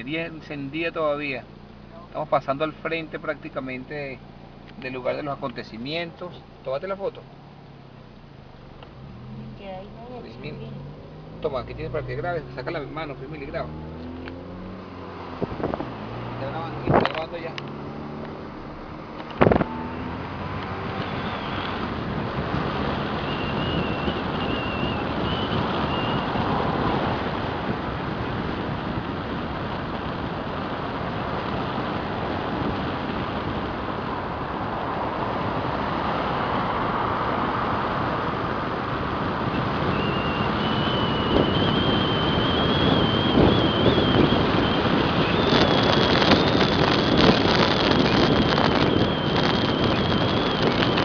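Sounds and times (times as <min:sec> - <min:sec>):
car road noise: 0:00.0 - 0:51.0
wind rushing over microphone: 0:08.2 - 0:51.0
thin wavering whistle: 0:21.0 - 0:21.8, 0:23.2 - 0:26.4, 0:39.5 - 0:46.8, 0:48.0 - 0:50.8.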